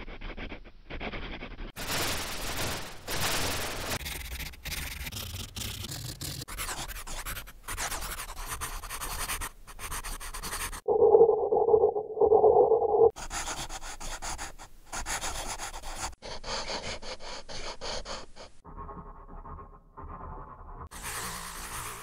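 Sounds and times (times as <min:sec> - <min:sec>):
altered pencil scratching: 0:00.0 - 0:02.2, 0:04.0 - 0:10.9, 0:13.1 - 0:18.6, 0:20.9 - 0:22.0
muffled hum-like tone: 0:10.9 - 0:13.1.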